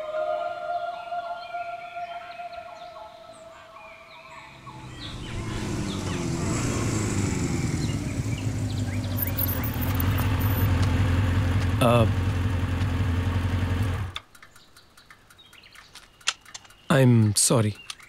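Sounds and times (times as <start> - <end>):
birds chirping: 0.0 - 18.0
motorcycle engine approaching: 4.3 - 16.8.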